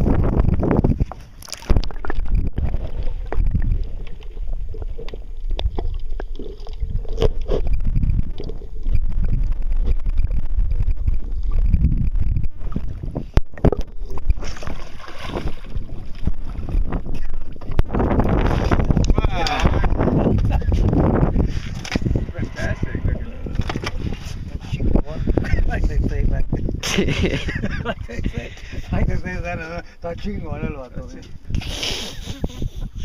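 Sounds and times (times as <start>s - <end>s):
wind rumbling on microphone: 0.0s - 33.0s
water sloshing against boat hull: 12.5s - 25.0s.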